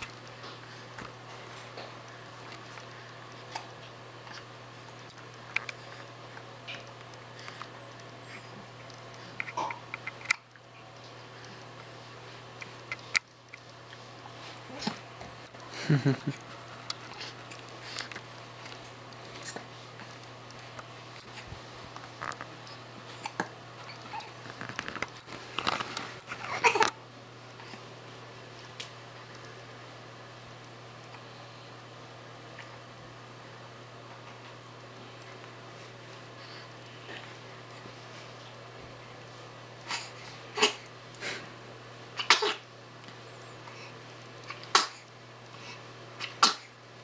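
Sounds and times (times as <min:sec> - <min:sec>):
baby sneezing: 0:39.9 - 0:40.9, 0:42.2 - 0:42.7, 0:44.5 - 0:45.1, 0:46.2 - 0:46.7.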